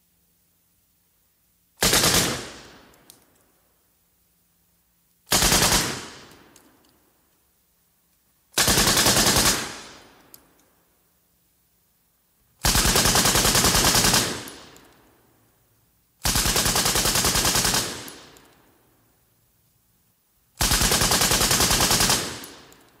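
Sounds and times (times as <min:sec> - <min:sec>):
machine gun automatic fire: 0:01.8 - 0:02.9, 0:05.3 - 0:06.4, 0:08.6 - 0:10.0, 0:12.6 - 0:14.8, 0:16.2 - 0:18.4, 0:20.6 - 0:22.9.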